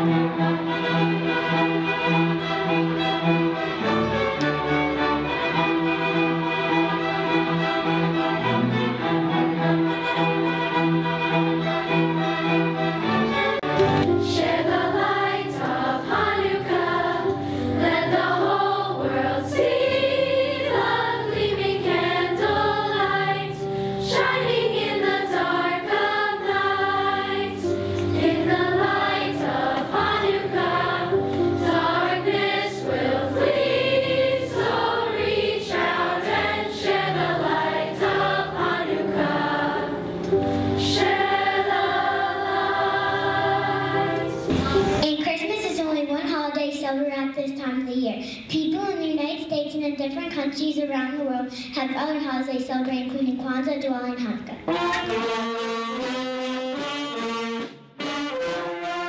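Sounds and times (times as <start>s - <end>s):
children's choir singing: 0.0s - 45.0s.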